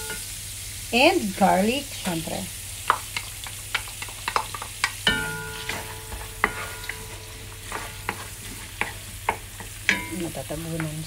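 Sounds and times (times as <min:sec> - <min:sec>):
garlic sizzling in butter and oil: 0:00.0 - 0:11.0
spoon knocking against pot: 0:02.9 - 0:11.0
spoon scraping and stirring: 0:03.2 - 0:10.2.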